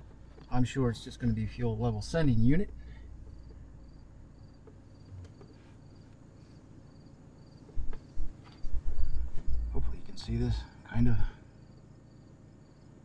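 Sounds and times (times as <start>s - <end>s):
cricket chirping: 0.0s - 13.0s
faint low rumble: 0.0s - 13.0s
dull bumps: 7.5s - 10.4s.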